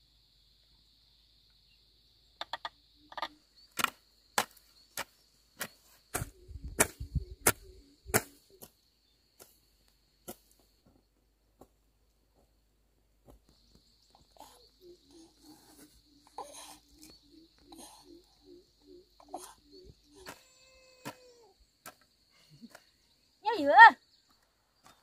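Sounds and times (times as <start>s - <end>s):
hoe chopping into soil: 3.8s - 8.7s
high insect drone: 13.5s - 25.0s.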